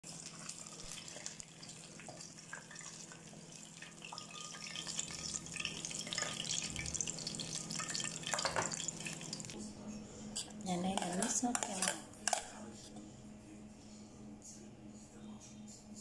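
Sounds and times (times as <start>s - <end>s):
hot oil sizzling and crackling: 0.0s - 9.6s
steady low hum: 9.0s - 16.0s.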